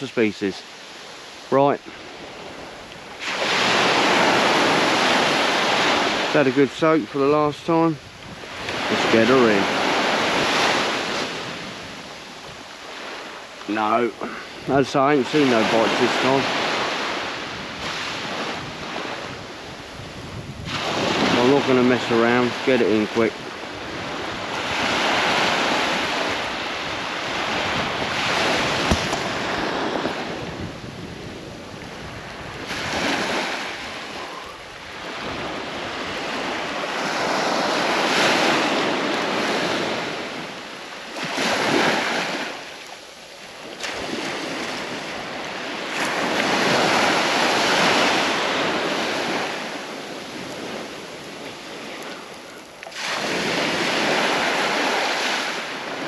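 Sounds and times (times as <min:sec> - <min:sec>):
waves breaking on beach: 0:00.0 - 0:56.0.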